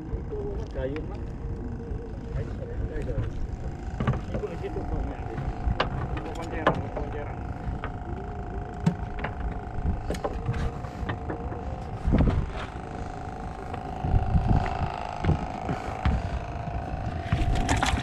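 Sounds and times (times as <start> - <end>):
engine humming: 0.0 - 18.0
low thumps: 8.8 - 18.0.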